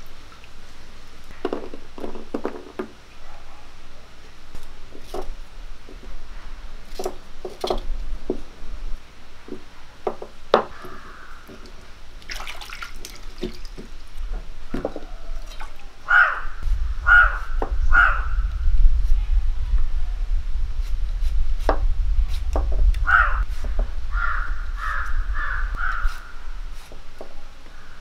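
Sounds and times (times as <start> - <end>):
hands splashing in water: 12.2 - 14.1.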